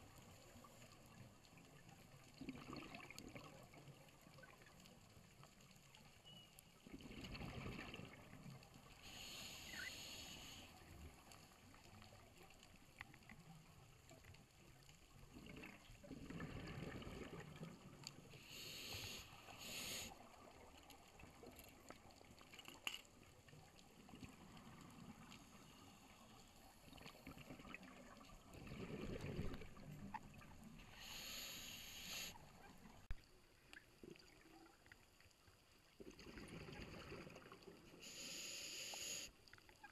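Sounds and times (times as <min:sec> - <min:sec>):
rush of exhaled bubbles: 0:02.4 - 0:03.8, 0:06.9 - 0:08.5, 0:15.3 - 0:18.0, 0:26.8 - 0:31.3, 0:36.0 - 0:38.0
regulator inhalation hiss: 0:09.0 - 0:10.7, 0:18.4 - 0:20.2, 0:30.9 - 0:32.5, 0:38.0 - 0:39.3.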